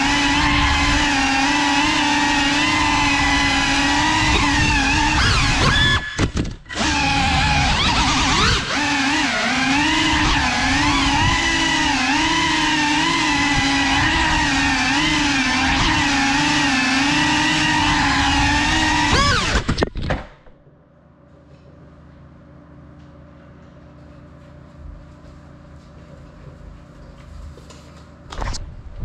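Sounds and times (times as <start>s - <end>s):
quadcopter motors whining: 0.0s - 19.8s.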